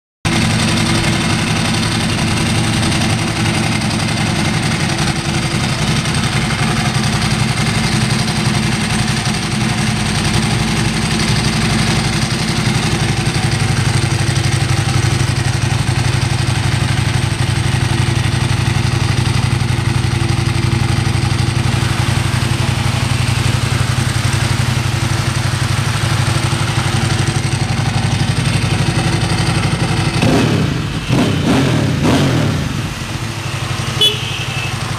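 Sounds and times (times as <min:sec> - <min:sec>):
motorcycle engine idling: 0:00.3 - 0:34.9.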